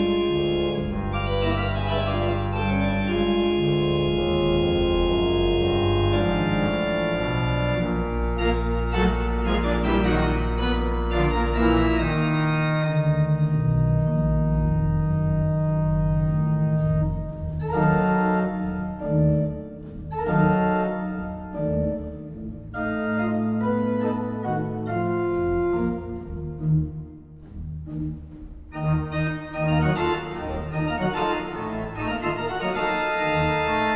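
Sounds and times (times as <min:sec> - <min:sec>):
deep organ pedal bass: 0:00.0 - 0:33.9
pipe organ chords: 0:00.0 - 0:33.9.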